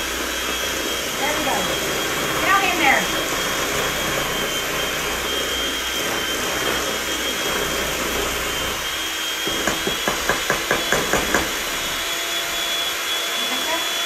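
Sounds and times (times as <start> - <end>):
electric hand mixer whine: 0.0 - 14.0.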